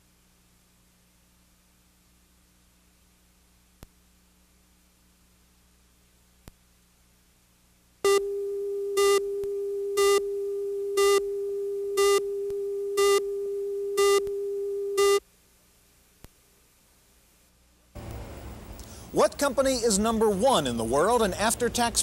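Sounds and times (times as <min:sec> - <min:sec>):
faint click: 0:03.8 - 0:04.0
test tone beeps: 0:08.1 - 0:15.2.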